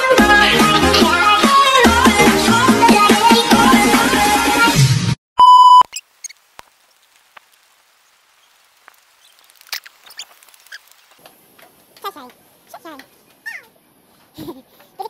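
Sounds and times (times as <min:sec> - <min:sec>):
electronic music: 0:00.0 - 0:04.9
high electronic beep: 0:05.4 - 0:05.8.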